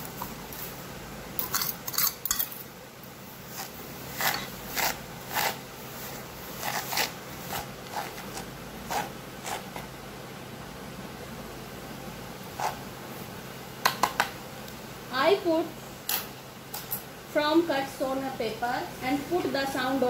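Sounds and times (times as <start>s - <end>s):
spoon spreading salt crunchily: 1.4s - 2.7s, 3.3s - 10.0s, 12.5s - 12.9s
steel spoon scraping and clinking: 1.4s - 2.7s.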